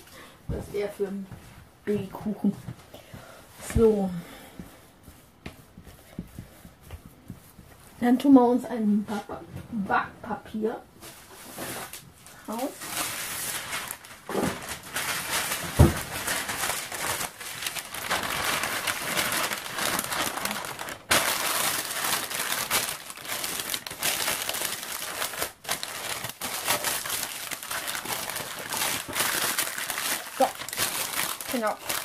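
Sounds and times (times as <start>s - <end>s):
baking paper crinkling: 11.0s - 32.0s.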